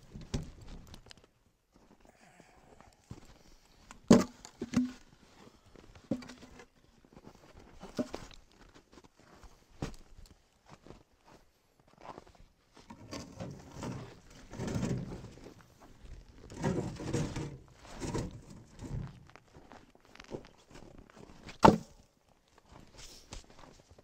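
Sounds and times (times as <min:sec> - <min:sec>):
logs being handled: 0:02.9 - 0:09.0, 0:12.8 - 0:23.8
log dropped on pile: 0:04.1 - 0:05.0, 0:06.1 - 0:06.6, 0:07.9 - 0:08.3, 0:21.5 - 0:22.1.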